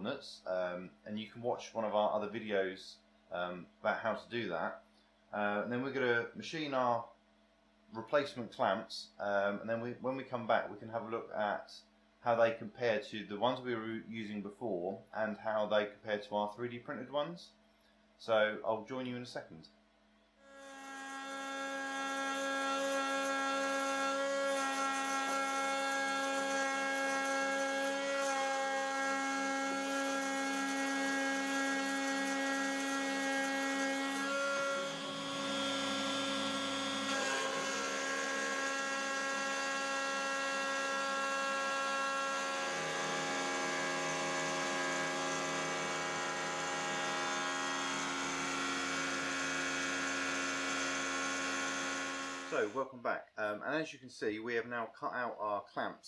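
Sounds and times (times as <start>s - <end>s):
router spindle whine: 20.5s - 52.8s.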